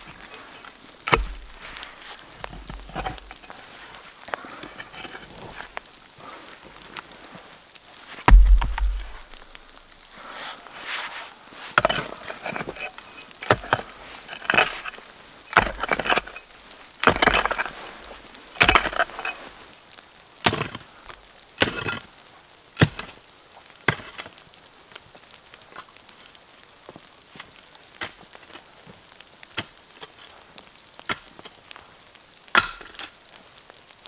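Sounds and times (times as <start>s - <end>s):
pickaxe striking stony soil: 1.1s - 1.8s, 2.6s - 3.3s, 8.3s - 9.6s, 15.5s - 16.3s, 17.0s - 17.7s, 18.6s - 19.2s, 20.4s - 20.8s, 21.6s - 22.0s, 22.8s - 23.1s, 32.5s - 33.1s.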